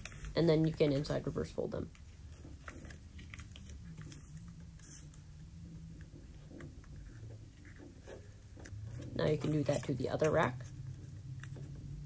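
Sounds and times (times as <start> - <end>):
low steady hum: 0.0 - 12.0
paper crinkling and clicking: 2.0 - 5.2.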